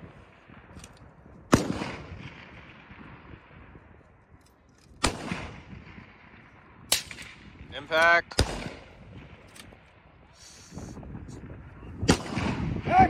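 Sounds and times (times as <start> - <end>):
rifle shots echoing: 0.0 - 4.0, 4.9 - 10.2, 12.0 - 12.9.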